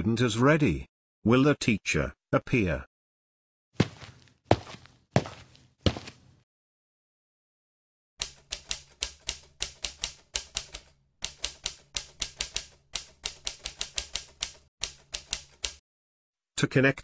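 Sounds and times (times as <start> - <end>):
typewriter keys clacking: 8.2 - 15.8.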